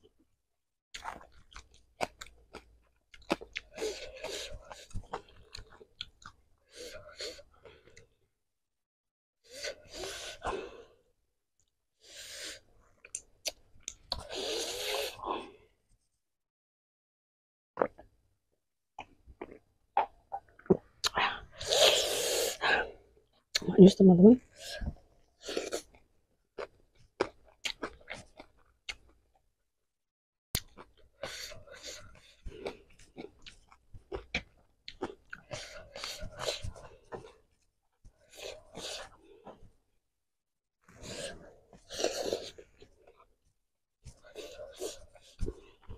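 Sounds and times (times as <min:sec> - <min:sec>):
mouth chewing crunchy food: 0:00.9 - 0:06.4, 0:26.6 - 0:29.2, 0:30.6 - 0:37.4, 0:41.1 - 0:43.3.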